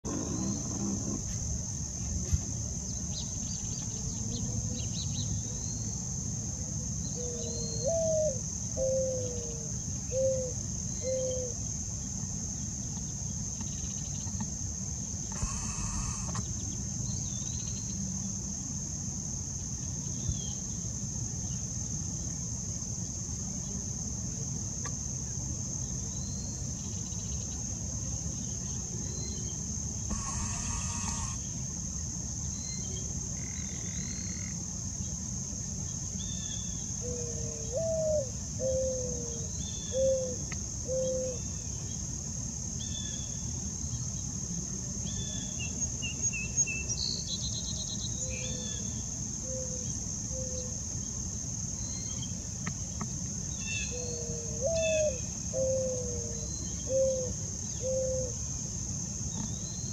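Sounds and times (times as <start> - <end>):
dove cooing: 0.0 - 1.4, 15.3 - 16.4, 30.1 - 31.4, 37.1 - 39.3, 53.9 - 58.3
high insect trill: 0.0 - 59.9.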